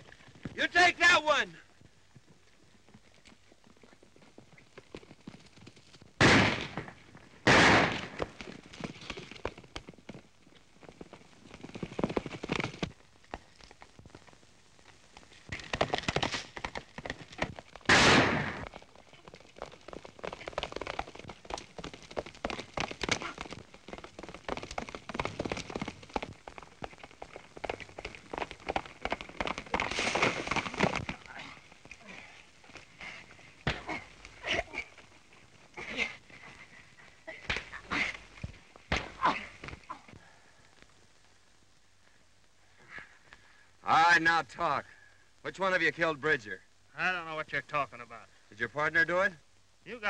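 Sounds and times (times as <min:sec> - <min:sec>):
horses galloping hoofbeats: 0:00.0 - 0:41.3.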